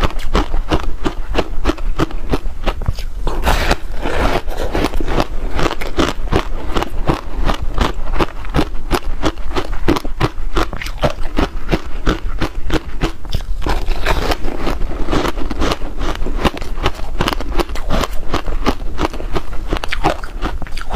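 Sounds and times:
ice crunching between teeth: 0.0s - 20.9s.

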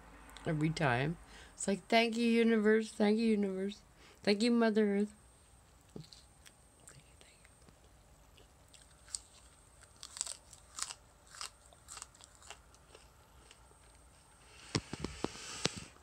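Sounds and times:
person chewing flower: 5.8s - 15.8s.

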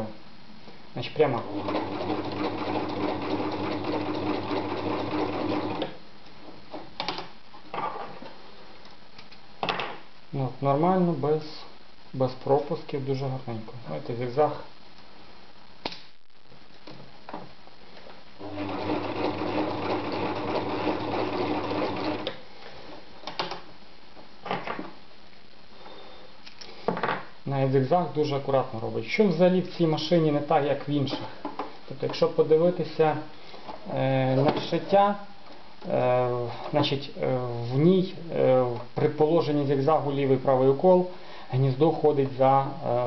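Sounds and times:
sewing machine running: 1.4s - 5.9s, 18.4s - 22.3s.

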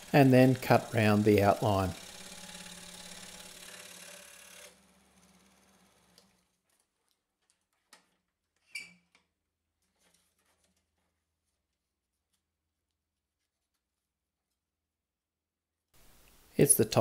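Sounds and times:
scroll saw humming: 0.0s - 6.6s.

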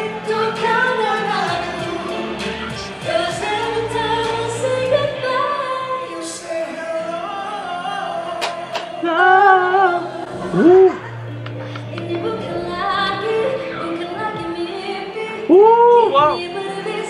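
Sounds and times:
person singing: 0.0s - 17.0s
pop backing music: 0.0s - 17.0s.

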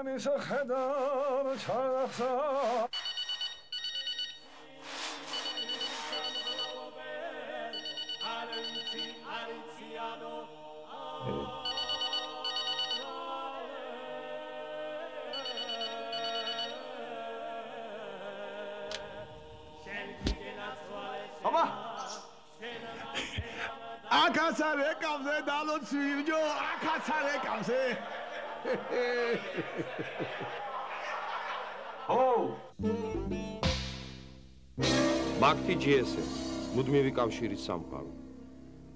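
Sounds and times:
people singing: 0.0s - 2.9s, 4.6s - 32.1s
mobile phone ringing: 2.9s - 7.0s, 7.7s - 9.5s, 11.6s - 13.4s, 15.3s - 17.0s.

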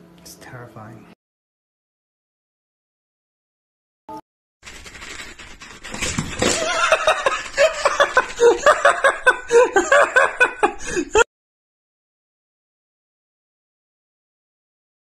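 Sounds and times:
person laughing hard: 6.4s - 11.3s.

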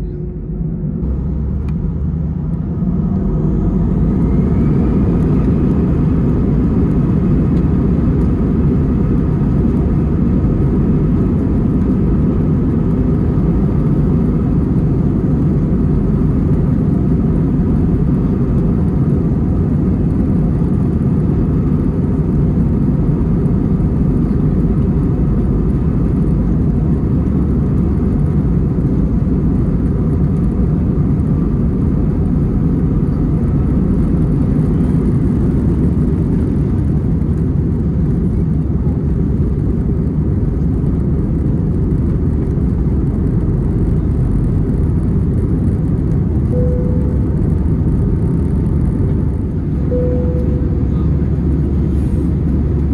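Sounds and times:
jet engine roar in cabin: 0.0s - 52.9s
faint steady whine: 43.3s - 52.9s.

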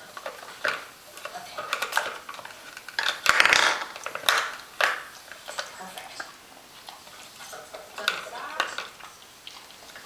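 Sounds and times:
plastic cups clattering on board: 0.0s - 5.8s, 7.9s - 9.0s.

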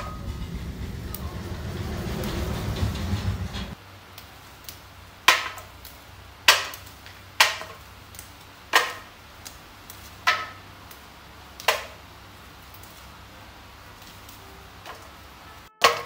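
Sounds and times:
soybean pods snapping off stems: 4.1s - 16.0s.

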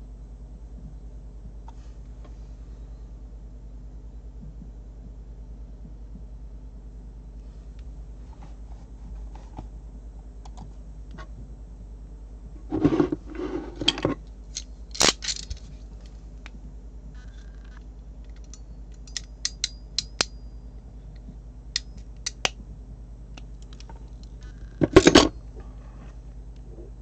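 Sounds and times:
crimping tool clicks and snips: 18.3s - 20.4s, 21.8s - 22.6s.

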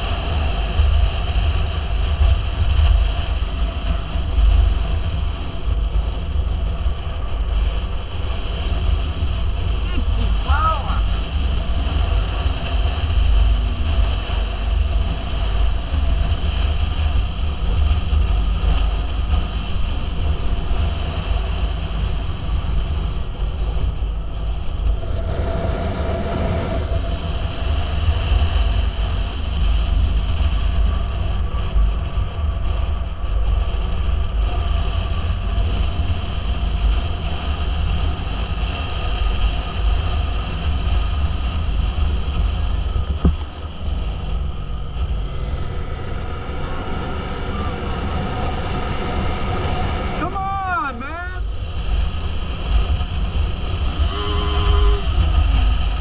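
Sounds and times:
motorcycle engine drone: 0.0s - 56.0s
wind rumble on microphone: 0.0s - 56.0s.

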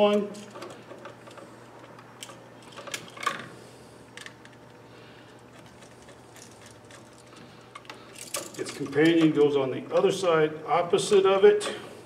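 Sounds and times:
low steady hum: 0.0s - 12.0s
wire clicks and scrapes: 4.1s - 9.5s.

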